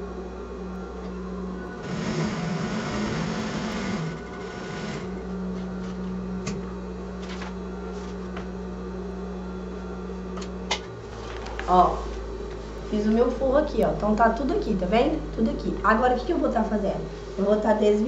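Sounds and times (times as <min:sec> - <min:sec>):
sewing machine stitching: 0:01.8 - 0:05.2.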